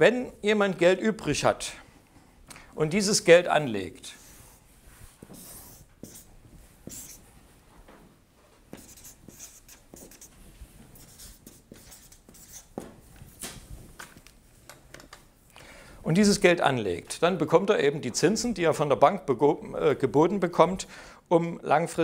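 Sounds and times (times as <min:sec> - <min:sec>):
marker scratching on paper: 0:04.1 - 0:07.3, 0:08.7 - 0:12.8.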